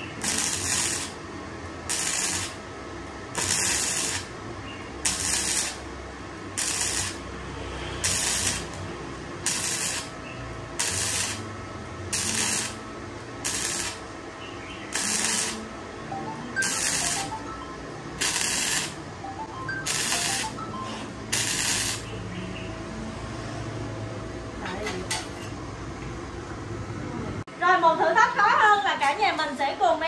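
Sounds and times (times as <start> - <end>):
welder arc bursts: 0.0 - 1.2, 1.9 - 2.6, 3.3 - 4.4, 5.0 - 5.9, 6.5 - 7.4, 8.0 - 10.2, 10.8 - 11.5, 12.1 - 12.8, 13.4 - 14.1, 14.9 - 15.7, 16.6 - 17.4, 18.2 - 19.0, 19.8 - 20.6, 21.3 - 22.1.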